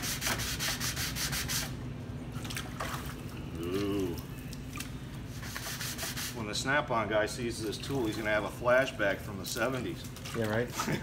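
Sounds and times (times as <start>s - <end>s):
hand sanding metal panel: 0.0s - 1.7s, 5.4s - 6.5s.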